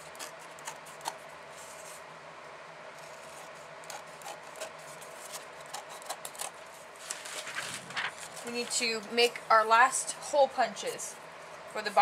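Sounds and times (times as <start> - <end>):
scissors rasping through paper: 0.0 - 2.0, 3.0 - 9.1
paper rustling: 4.6 - 9.1.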